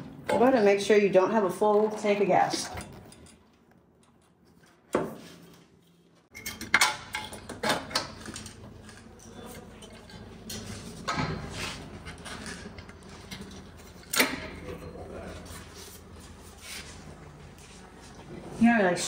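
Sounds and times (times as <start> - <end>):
metal tools clinking: 2.6 - 4.3.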